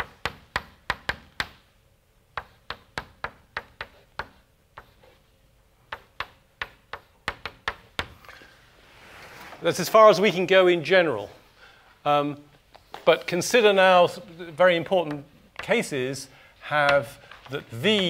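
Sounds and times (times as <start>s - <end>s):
chalk tapping on blackboard: 0.0s - 1.7s, 2.3s - 5.2s, 5.9s - 8.2s, 16.8s - 18.0s.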